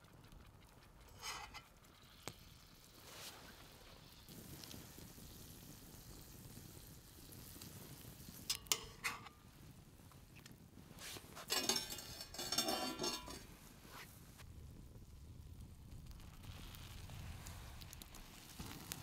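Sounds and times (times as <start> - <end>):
metal clinking on frying pan: 8.5 - 9.3, 11.4 - 13.5.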